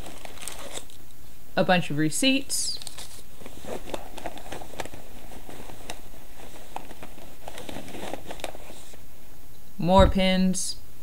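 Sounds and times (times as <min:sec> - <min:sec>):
rustling in canvas bag: 0:03.0 - 0:09.0.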